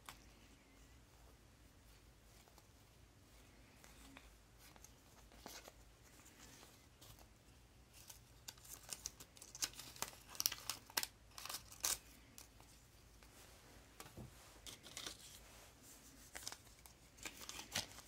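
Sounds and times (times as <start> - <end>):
paper packets crinkling: 7.9 - 12.6, 16.2 - 18.0.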